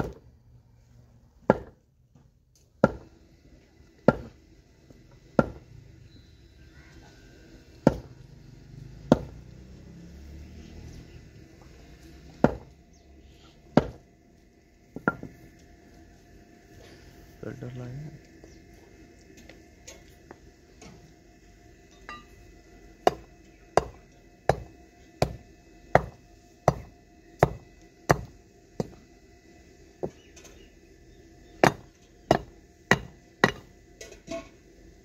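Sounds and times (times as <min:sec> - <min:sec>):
wooden peg pounded with log: 0:01.4 - 0:01.8, 0:02.8 - 0:03.0, 0:04.0 - 0:04.3, 0:05.4 - 0:05.6, 0:07.8 - 0:08.1, 0:09.1 - 0:09.4, 0:12.4 - 0:12.7, 0:13.7 - 0:14.0, 0:26.0 - 0:29.0, 0:31.6 - 0:33.6.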